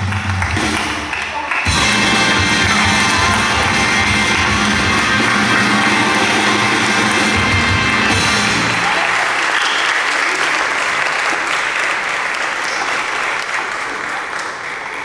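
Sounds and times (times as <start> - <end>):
music: 0.0 - 9.2
audience applauding: 0.0 - 15.0.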